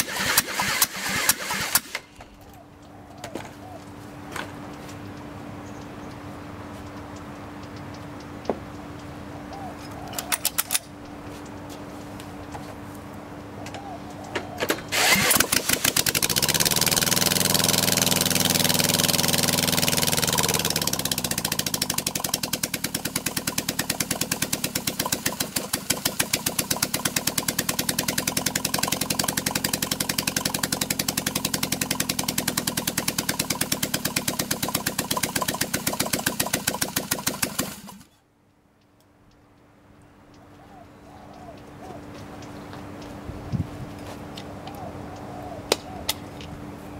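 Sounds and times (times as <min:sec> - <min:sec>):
engine revving and idling: 0:00.0 - 0:02.1, 0:14.8 - 0:38.1
electric drill cranking engine: 0:00.0 - 0:02.2, 0:14.9 - 0:38.1.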